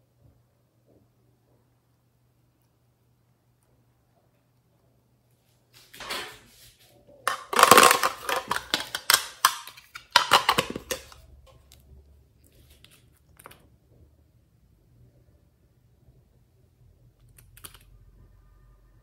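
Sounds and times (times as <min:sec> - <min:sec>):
plastic containers clattering: 0:07.3 - 0:11.2.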